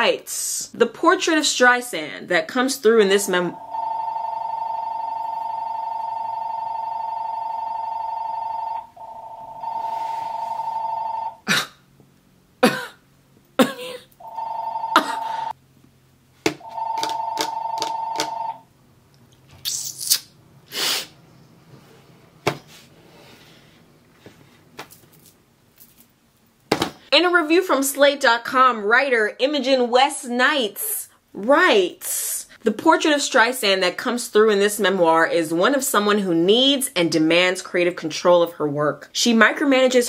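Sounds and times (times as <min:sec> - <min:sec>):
telephone ringing two-tone warble: 0:03.1 - 0:11.4, 0:14.2 - 0:15.6, 0:16.6 - 0:18.6.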